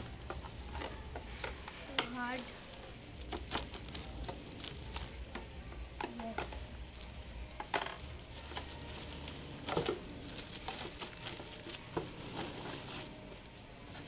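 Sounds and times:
plastic wrapping crinkling: 0:03.1 - 0:05.4, 0:06.8 - 0:14.0
loud plastic crackles: 0:03.1 - 0:14.0.

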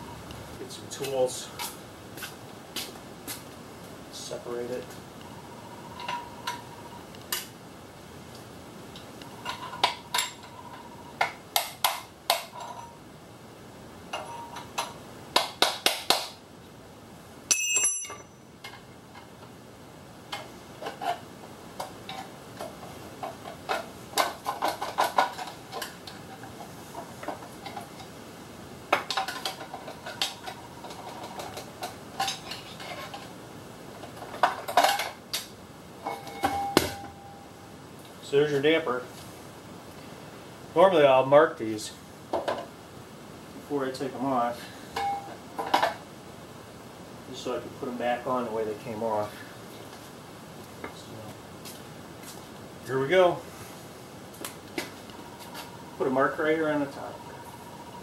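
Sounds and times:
metal hand tools clinking: 0:17.5 - 0:18.4
ringing metal clink: 0:17.5 - 0:18.4.

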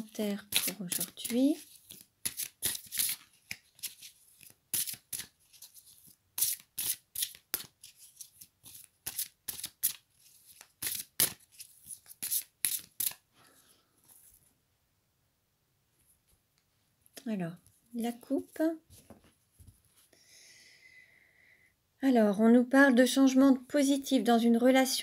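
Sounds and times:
cards being shuffled: 0:00.0 - 0:13.2.

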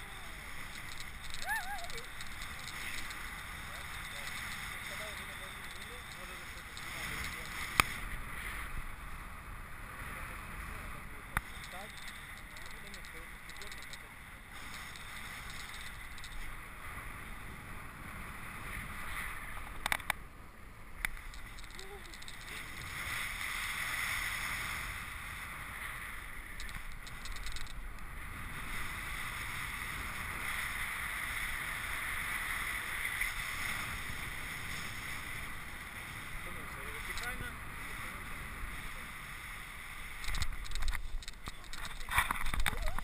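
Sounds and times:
wind noise on microphone: 0:00.0 - 0:20.2, 0:21.0 - 0:43.0
sharp clicks: 0:00.5 - 0:07.9, 0:11.4 - 0:16.5, 0:19.6 - 0:20.2, 0:21.0 - 0:22.6, 0:26.6 - 0:28.1, 0:40.2 - 0:43.0.

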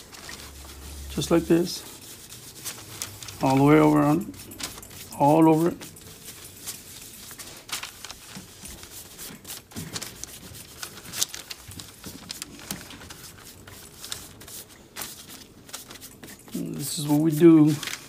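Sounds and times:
rubbing and dabbing on leather: 0:00.0 - 0:18.0
small clicks and rustles: 0:05.8 - 0:16.6.

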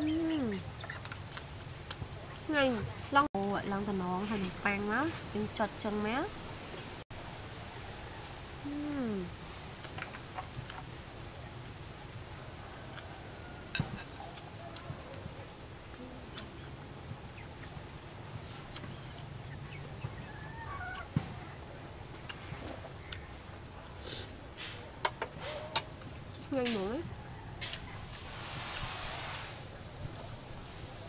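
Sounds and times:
insects chirping: 0:03.4 - 0:07.1, 0:08.6 - 0:12.0, 0:13.6 - 0:23.4, 0:25.8 - 0:29.0.

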